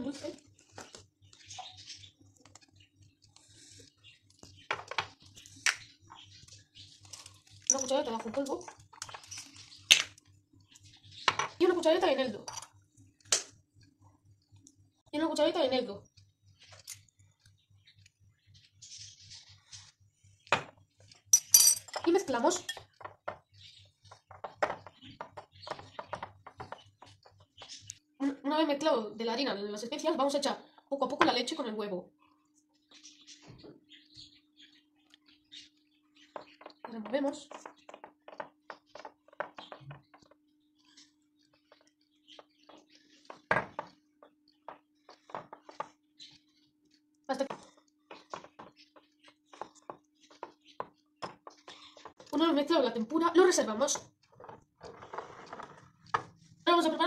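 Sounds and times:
glass clink: 21.4 - 22.0.

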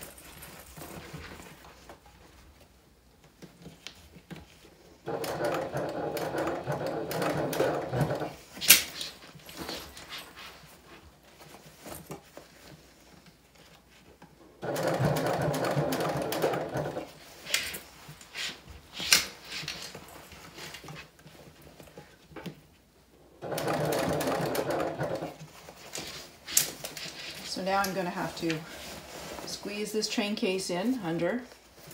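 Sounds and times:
handling noise: 0.0 - 30.1
sewing machine stitching: 5.0 - 9.2, 14.6 - 17.8, 23.4 - 26.3.

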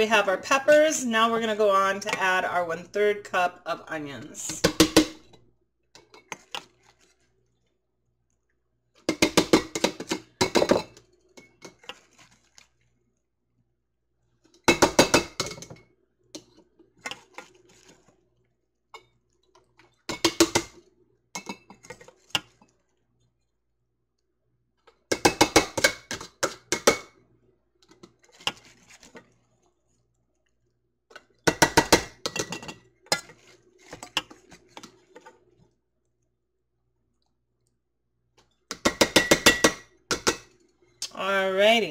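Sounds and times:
clinks and knocks against glass jars: 32.3 - 33.3.

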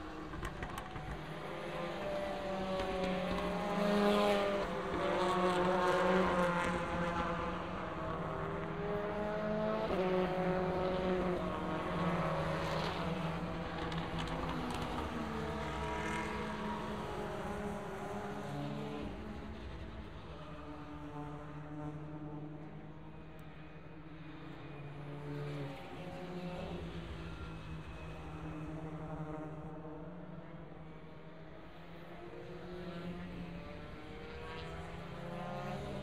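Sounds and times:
racing cars passing: 0.1 - 22.9.

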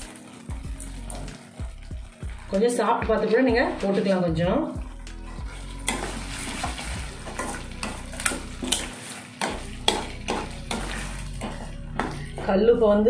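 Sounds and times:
frying sizzle: 0.0 - 13.0
spoon scraping metal pan: 5.2 - 12.6.

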